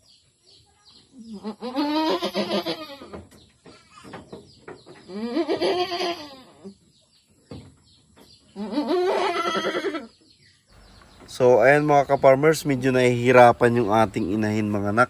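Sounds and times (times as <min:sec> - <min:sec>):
goat bleating loudly: 0:01.3 - 0:03.1, 0:05.1 - 0:06.6, 0:08.6 - 0:10.1.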